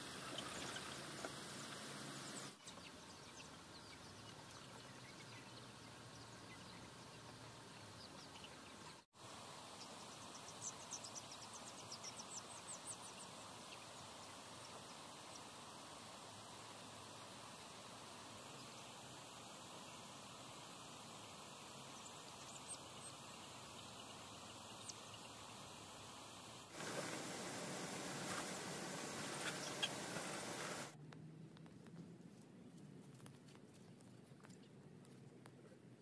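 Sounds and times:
young chickens peeping and chirping: 29.2s - 30.6s.

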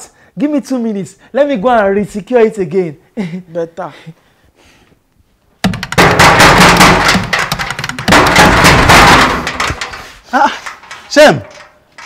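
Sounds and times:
rapid cracking and clattering: 5.6s - 12.0s.

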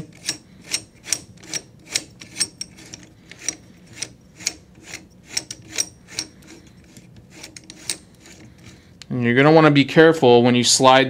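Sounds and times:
metal nut unscrewing clicks: 0.0s - 8.8s.

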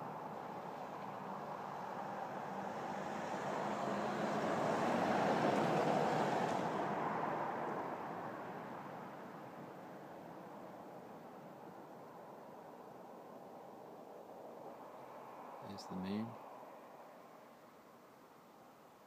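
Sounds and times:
vehicle passing by: 0.0s - 11.5s.

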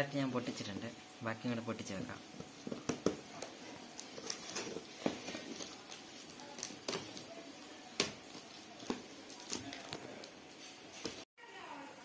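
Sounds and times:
tape and cardboard crackles: 2.4s - 11.2s.

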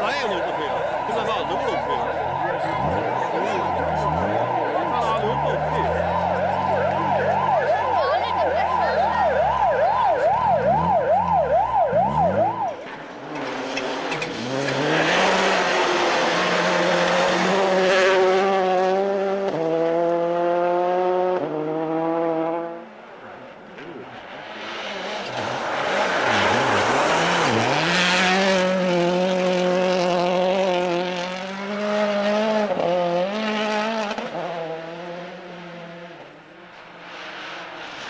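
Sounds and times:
siren wailing: 0.0s - 12.8s
rally car revving past: 13.2s - 22.9s, 24.2s - 38.0s.

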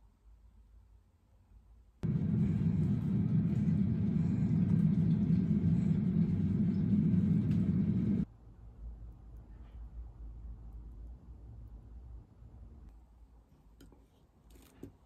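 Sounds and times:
low rumble: 2.0s - 8.3s.

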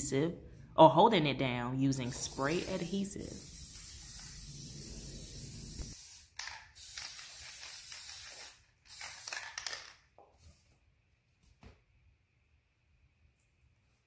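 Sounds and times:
aerosol can spraying: 2.0s - 9.8s.

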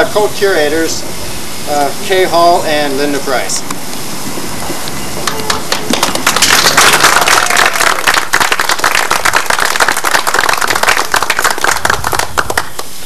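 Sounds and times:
audience applauding: 5.2s - 13.0s.

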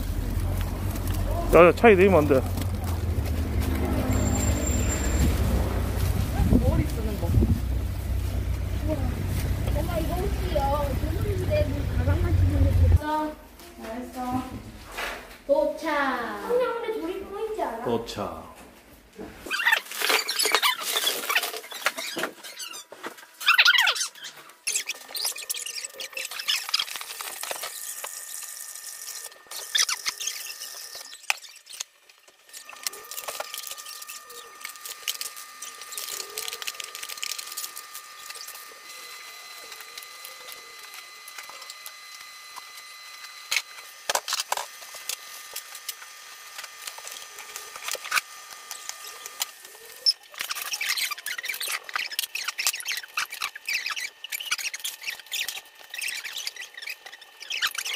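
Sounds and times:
plastic packaging crinkling: 0.0s - 11.6s, 19.4s - 57.9s
faint high whine: 0.0s - 13.2s.

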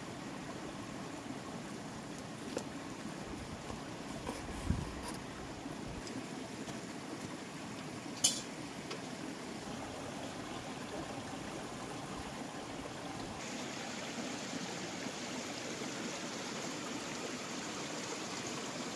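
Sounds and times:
rushing running water: 0.0s - 18.9s.

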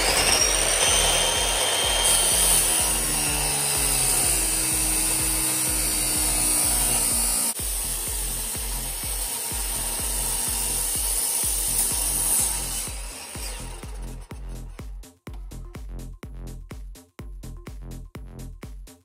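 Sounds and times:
abrasive saw grinding through metal: 0.0s - 14.8s.

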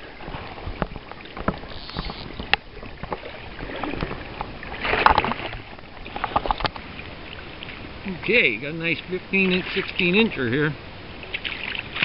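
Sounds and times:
fish thrashing and splashing water: 0.2s - 7.9s, 11.2s - 12.0s.

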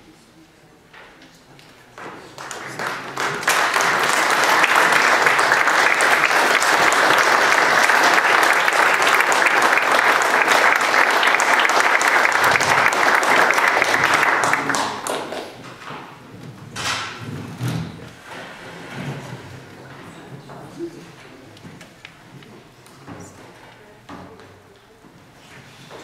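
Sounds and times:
audience applauding: 2.3s - 15.6s.

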